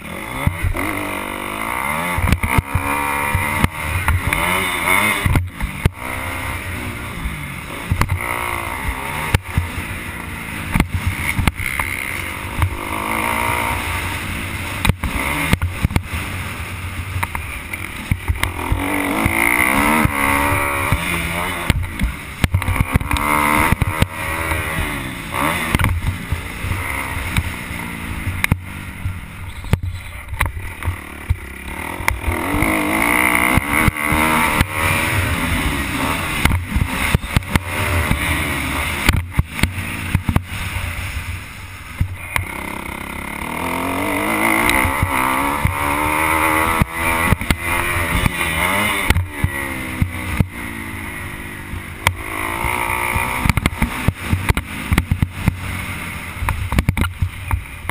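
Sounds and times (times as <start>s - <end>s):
dirt bike engine revving: 0.0s - 57.9s.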